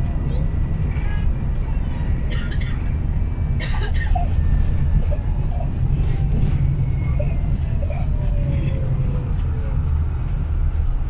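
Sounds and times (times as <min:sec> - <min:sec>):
bus engine and road noise: 0:00.0 - 0:11.0.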